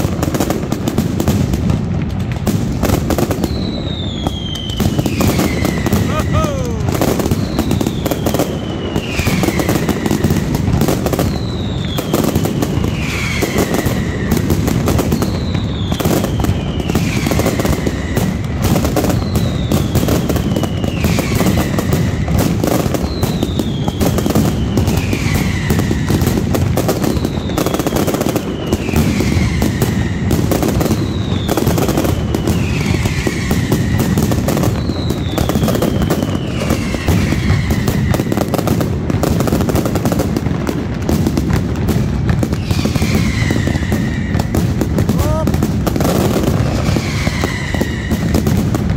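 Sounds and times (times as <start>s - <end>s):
firecrackers rapid bangs: 0.0s - 48.9s
falling whistle: 42.6s - 44.5s, 46.8s - 48.3s.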